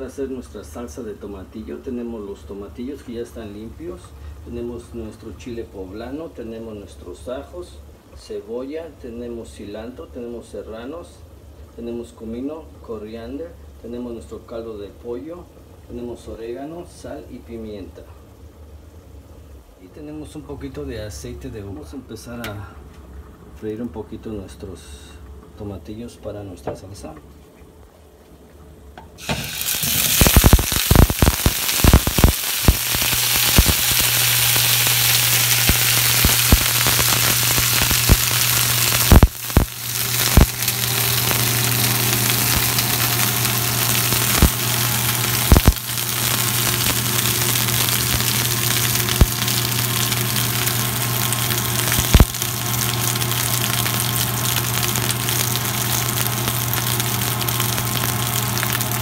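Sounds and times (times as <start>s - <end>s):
food sizzling in hot oil: 29.2s - 59.0s
steady low hum: 29.6s - 59.0s.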